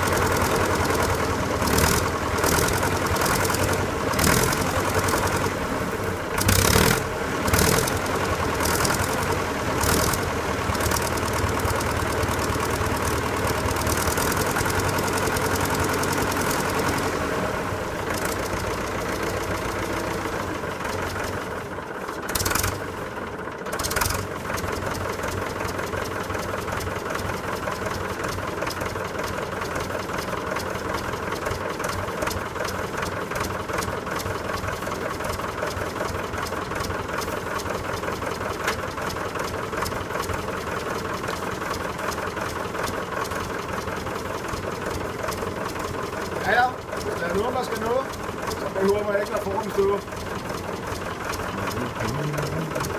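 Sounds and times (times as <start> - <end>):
diesel tractor engine idling: 0.0 - 52.9.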